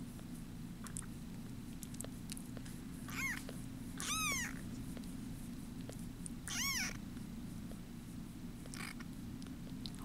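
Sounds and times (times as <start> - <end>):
kittens mewing: 3.1 - 4.6, 6.4 - 7.0, 8.7 - 9.0.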